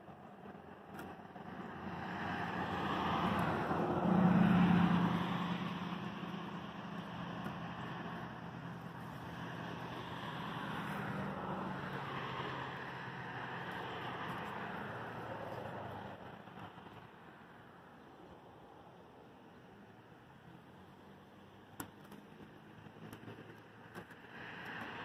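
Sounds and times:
low engine hum: 0:00.0 - 0:25.0
motor vehicle passing: 0:01.0 - 0:17.5.

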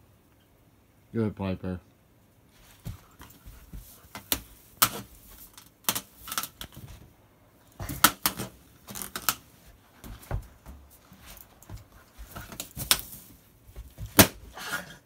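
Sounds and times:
dog pawing at balloon: 0:02.7 - 0:05.5, 0:07.8 - 0:09.2, 0:10.0 - 0:14.4.

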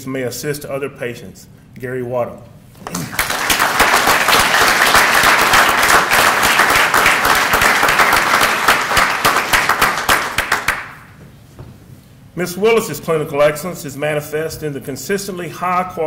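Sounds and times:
audience applauding: 0:02.9 - 0:11.1.

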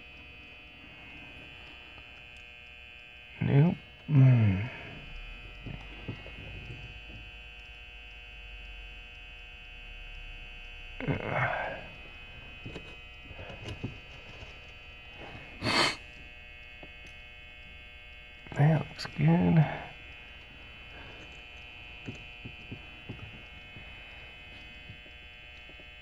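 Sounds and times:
electrical hum: 0:00.0 - 0:26.0
breathy noises: 0:04.0 - 0:07.2, 0:11.0 - 0:16.2.

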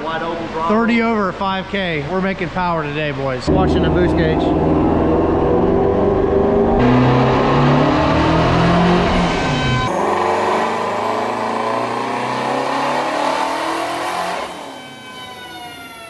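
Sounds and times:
car engine revving on dyno: 0:03.5 - 0:16.0.

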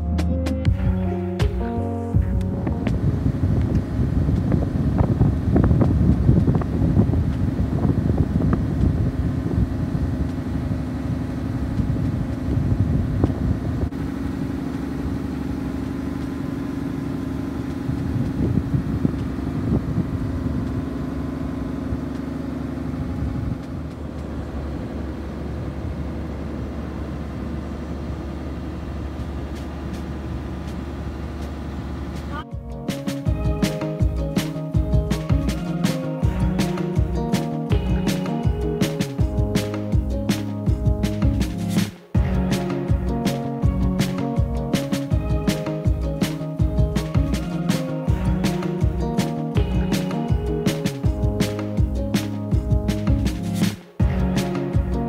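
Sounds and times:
boat engine low hum: 0:01.6 - 0:32.4
gusty wind noise: 0:02.2 - 0:14.4, 0:17.7 - 0:21.1, 0:23.0 - 0:24.8.

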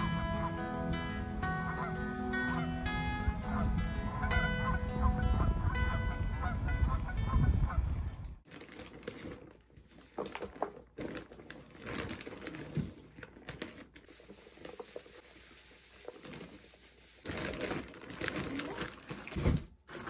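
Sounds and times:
music: 0:00.0 - 0:07.6
shredded paper rustling: 0:08.4 - 0:20.0.

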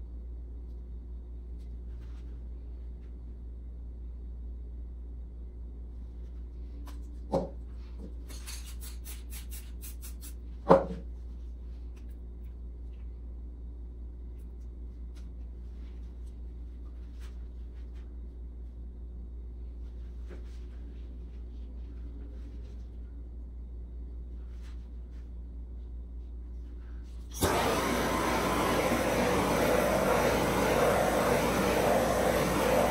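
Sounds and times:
steady low hum: 0:00.0 - 0:08.4, 0:10.4 - 0:32.9
flame hissing: 0:27.3 - 0:32.9
gas torch lighting: 0:27.3 - 0:32.9.

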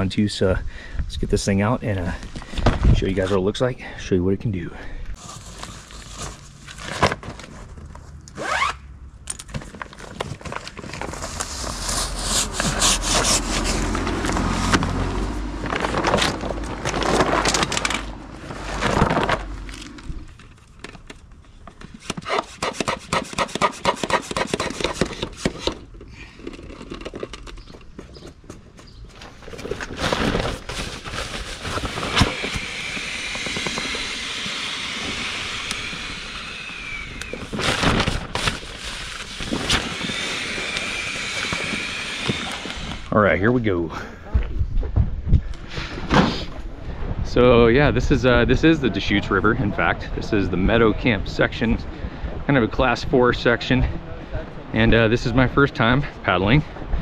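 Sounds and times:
fabric rubbing and scraping: 0:10.2 - 0:20.1.

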